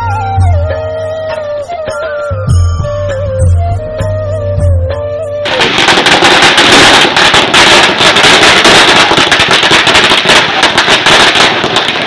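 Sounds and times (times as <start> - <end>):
firecrackers crackling: 5.4 - 12.0.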